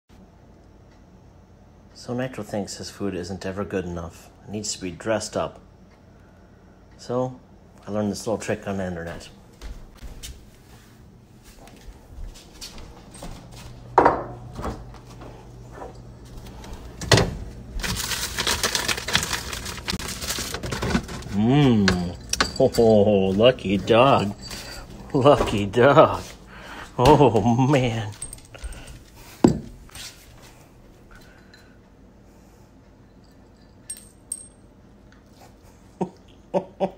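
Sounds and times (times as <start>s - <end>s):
refrigerator door thud: 17.0s - 17.5s
kibble clinking in metal bowl: 17.9s - 25.7s
rapid metallic jingling: 21.9s - 25.3s.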